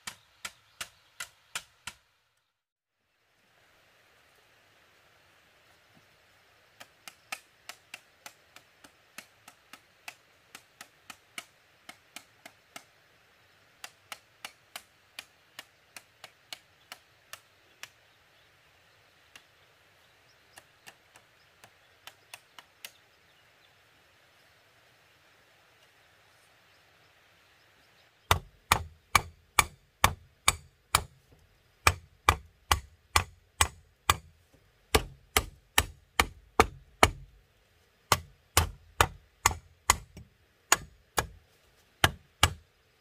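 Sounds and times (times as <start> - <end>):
tool tapping bamboo: 0.0 - 2.0, 6.8 - 12.9, 13.8 - 18.0, 20.6 - 23.0, 28.3 - 37.4, 38.1 - 41.4, 42.0 - 42.7.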